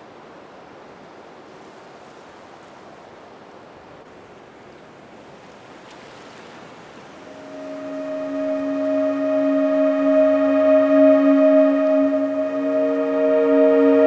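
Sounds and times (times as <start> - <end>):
held tone with overtones: 7.3 - 14.0.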